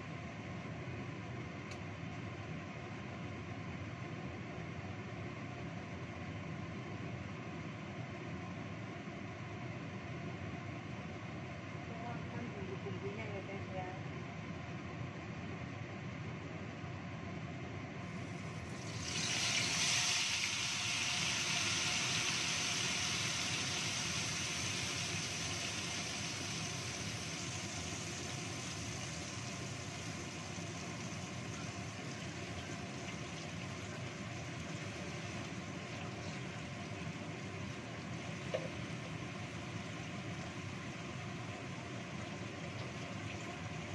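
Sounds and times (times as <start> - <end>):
paste sizzling in hot oil: 18.3 - 41.0.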